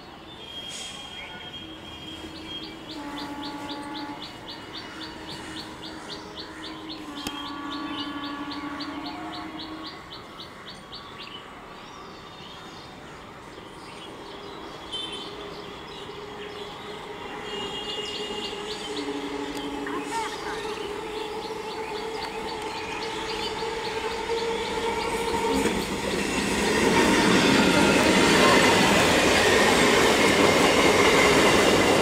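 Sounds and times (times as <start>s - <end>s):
trains approaching: 0.0s - 32.0s
train horn blasts: 0.4s - 4.5s, 5.1s - 10.1s, 14.7s - 26.0s.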